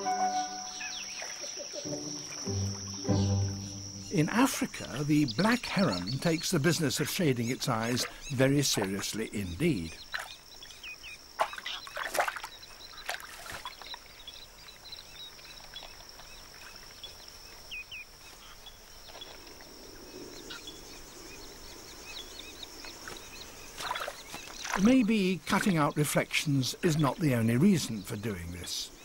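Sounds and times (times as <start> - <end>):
soft water splashes: 10.0 - 17.0, 23.0 - 25.8.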